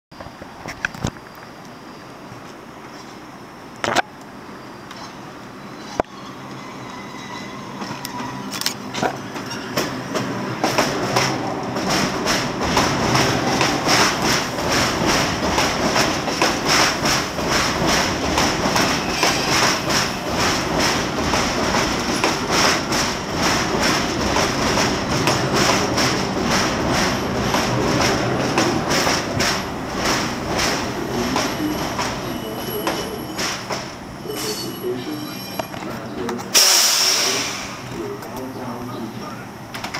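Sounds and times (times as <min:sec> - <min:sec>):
subway train passing: 0:00.2 - 0:39.9
high squeal: 0:04.7 - 0:09.9, 0:18.9 - 0:20.3, 0:31.2 - 0:35.9
wheels clacking over rail joints: 0:07.8 - 0:34.1.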